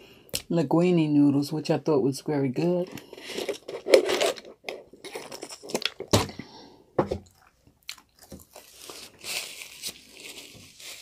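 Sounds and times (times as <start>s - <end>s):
person chewing crunchy food: 3.0s - 6.4s, 7.2s - 11.0s.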